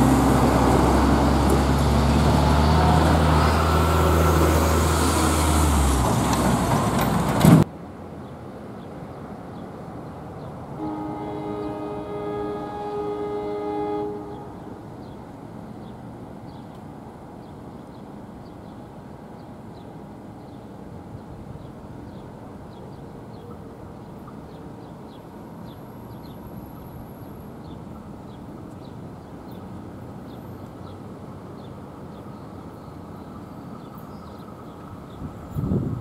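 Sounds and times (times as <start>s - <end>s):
outdoor background rumble: 0.0s - 8.4s.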